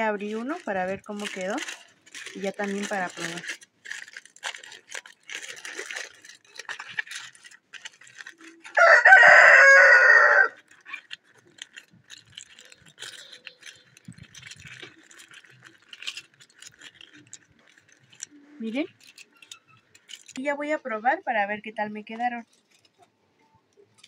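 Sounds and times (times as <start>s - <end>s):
aluminium foil crinkling: 0.0s - 24.0s
rooster crowing: 8.7s - 10.6s.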